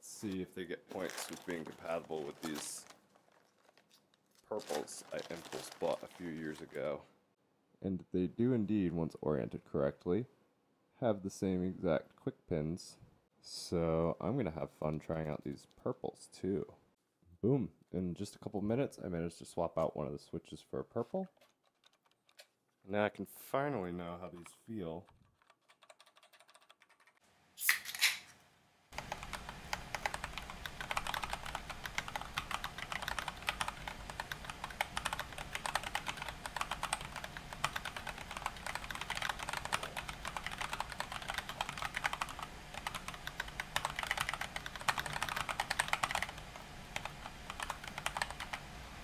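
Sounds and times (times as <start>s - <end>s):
fast typing on mechanical keyboard: 21.4s - 22.4s, 25.1s - 27.2s, 29.0s - 48.6s.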